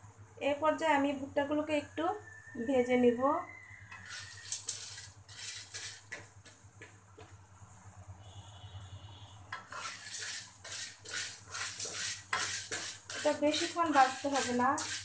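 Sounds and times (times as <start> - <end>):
spatula scraping kernels in wok: 3.9 - 6.9, 9.5 - 15.0.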